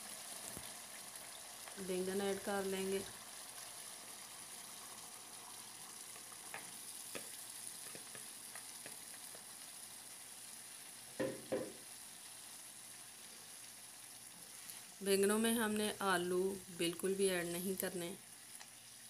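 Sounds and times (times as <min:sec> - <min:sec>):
sauce sizzling in a pan: 0:00.0 - 0:19.0
double knock: 0:11.2 - 0:11.8.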